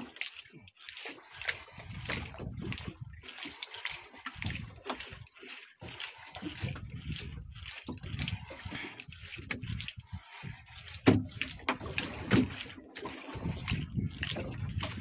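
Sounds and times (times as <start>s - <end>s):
water slapping against boat hull: 0.0s - 15.0s
wind gusts on microphone: 6.6s - 10.8s, 13.3s - 15.0s.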